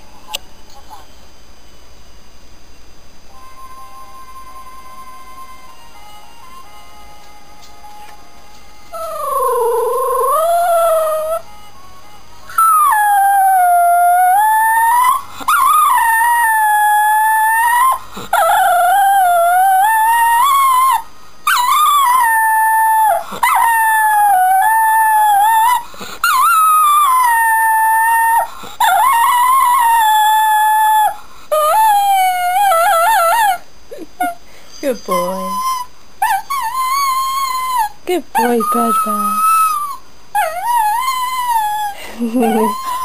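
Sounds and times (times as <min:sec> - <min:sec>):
dog howling: 0:08.9 - 0:11.4, 0:12.5 - 0:33.6.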